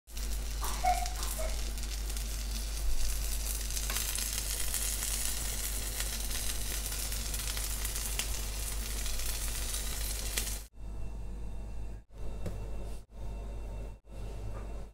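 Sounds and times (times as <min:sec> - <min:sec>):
food sizzling in a frying pan: 0:00.1 - 0:10.7.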